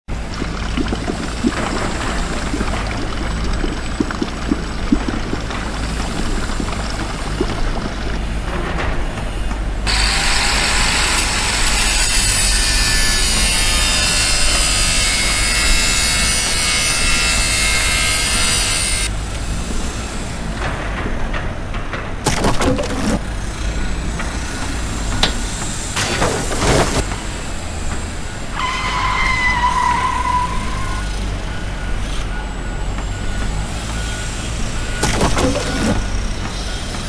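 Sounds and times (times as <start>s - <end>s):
wet concrete flowing: 0.1s - 8.5s, 22.3s - 23.2s, 35.0s - 36.1s
angle grinder cutting steel: 9.9s - 19.1s.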